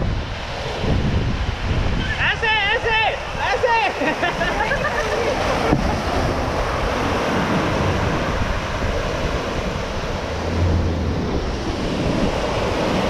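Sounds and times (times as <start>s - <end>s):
wind on microphone: 0.0s - 13.0s
truck driving through mud: 4.0s - 13.0s.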